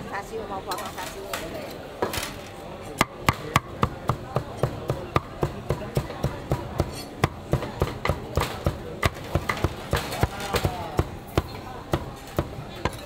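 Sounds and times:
cleaver chopping meat on block: 0:03.0 - 0:13.0.

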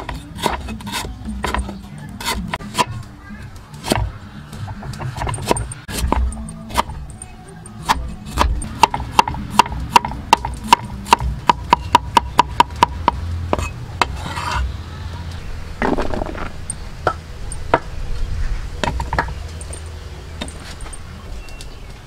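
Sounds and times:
cleaver chopping on wooden block: 0:00.0 - 0:03.0, 0:03.8 - 0:07.0, 0:07.8 - 0:14.6
blade scraping wood: 0:00.0 - 0:03.1, 0:03.7 - 0:11.2, 0:13.0 - 0:14.8.

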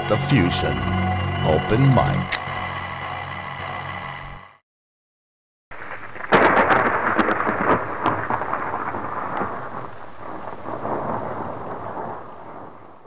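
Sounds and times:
thunder crack rolling: 0:05.7 - 0:13.0.

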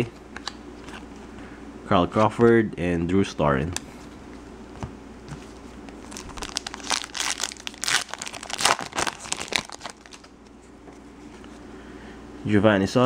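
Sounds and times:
foil wrapper tearing and crinkling: 0:06.0 - 0:10.3.

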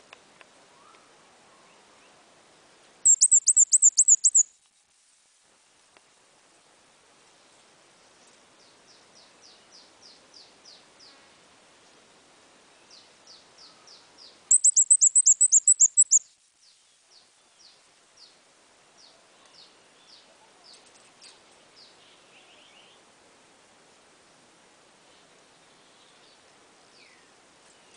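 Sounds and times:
rapid burst of high chirps: 0:03.0 - 0:04.5, 0:14.5 - 0:16.3
songbird falling chirps: 0:03.1 - 0:04.4, 0:14.5 - 0:16.2.

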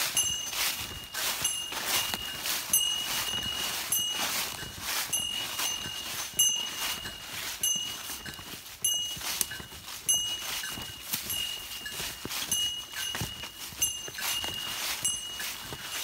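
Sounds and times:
footsteps through dry leaves: 0:00.0 - 0:16.0.

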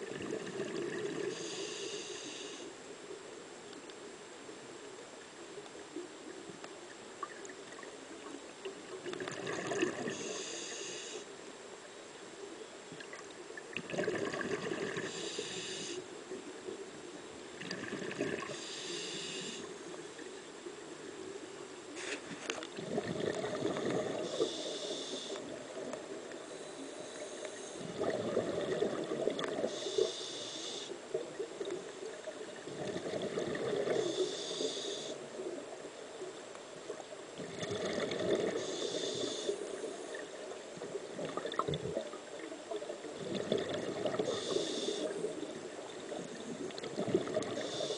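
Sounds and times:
diver breathing through regulator: 0:01.2 - 0:02.8, 0:09.9 - 0:11.3, 0:14.8 - 0:16.1, 0:18.0 - 0:19.8, 0:23.0 - 0:25.6, 0:26.5 - 0:28.8, 0:29.5 - 0:31.0, 0:33.3 - 0:35.3, 0:37.6 - 0:40.2, 0:43.4 - 0:45.4, 0:47.3 - 0:47.9
bubbling exhalations: 0:09.2 - 0:10.1, 0:13.8 - 0:15.1, 0:17.6 - 0:18.5, 0:22.8 - 0:24.3, 0:37.4 - 0:38.7.

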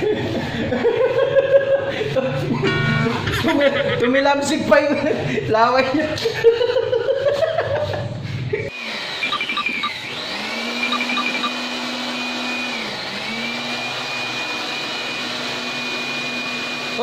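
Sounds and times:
man laughing: 0:00.0 - 0:08.7
electric air blower running: 0:08.7 - 0:17.0.

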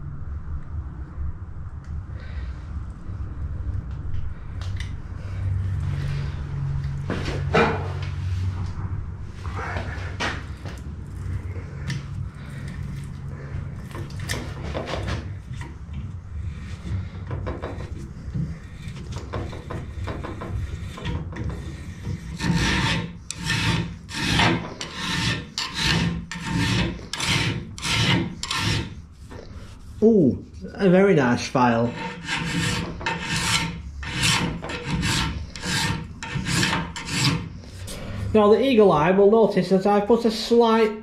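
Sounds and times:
file rasping on steel: 0:16.4 - 0:29.9, 0:31.6 - 0:37.9.

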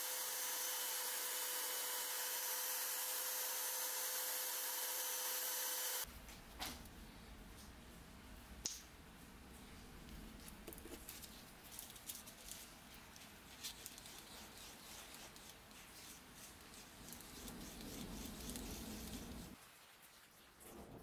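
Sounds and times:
stick scraping on sandpaper: 0:10.7 - 0:19.6.

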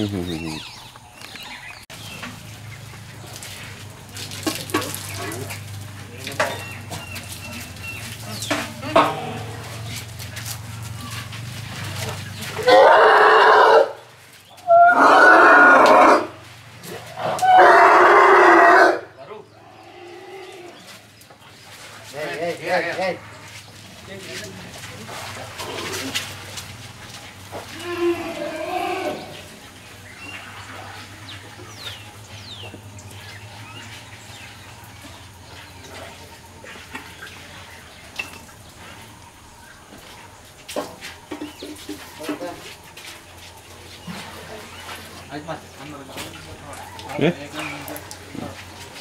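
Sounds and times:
young elephants calling: 0:02.5 - 0:21.6, 0:27.4 - 0:40.5.

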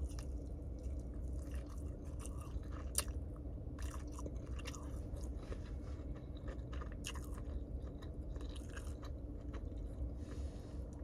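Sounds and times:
person chewing food: 0:00.0 - 0:11.0
steady low hum: 0:00.0 - 0:11.0
crunchy bites: 0:03.8 - 0:10.1.

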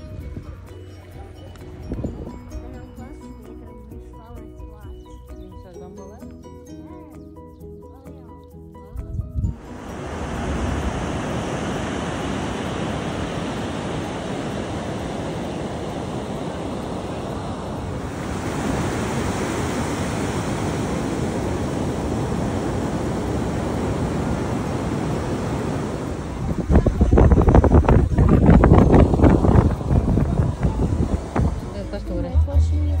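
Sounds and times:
waves breaking on beach: 0:09.5 - 0:32.2.

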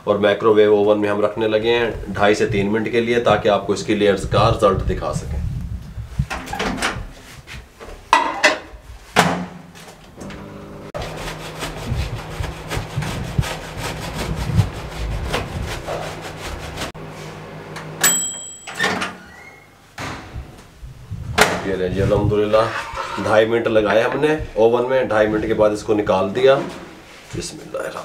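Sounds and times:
cheese grating on metal grater: 0:11.0 - 0:16.9
high ring with clatter: 0:18.0 - 0:19.1.

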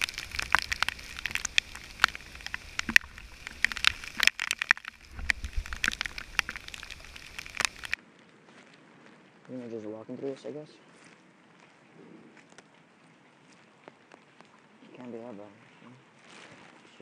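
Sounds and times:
heavy rain: 0:00.0 - 0:08.0
raindrops ticking on camera housing: 0:00.0 - 0:08.0.

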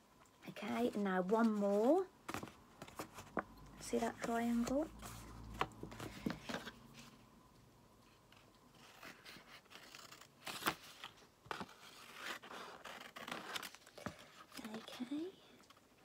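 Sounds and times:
scissors cutting paper: 0:11.7 - 0:15.0.

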